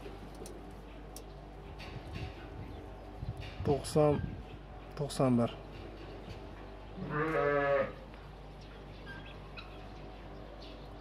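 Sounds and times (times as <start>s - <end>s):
sheep bleating: 7.0s - 8.0s.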